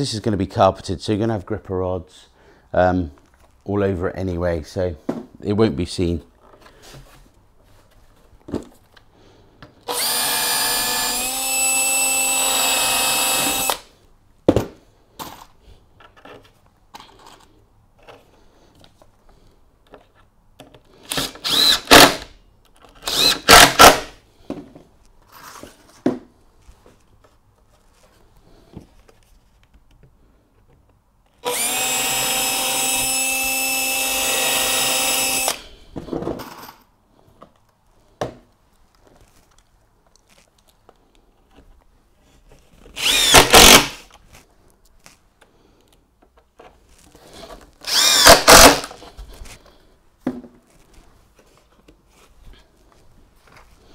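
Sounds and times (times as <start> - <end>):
cordless drill whining: 9.8 - 13.9, 21.0 - 22.3, 23.0 - 24.2, 31.4 - 35.8, 43.0 - 44.1, 47.8 - 49.0.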